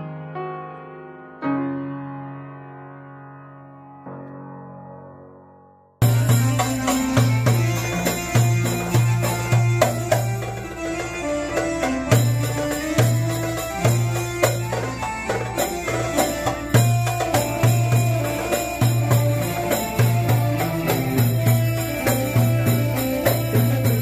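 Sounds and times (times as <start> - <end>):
electronic keyboard melody: 0.0 - 24.0
hand drum beating quick rhythm: 6.0 - 24.0.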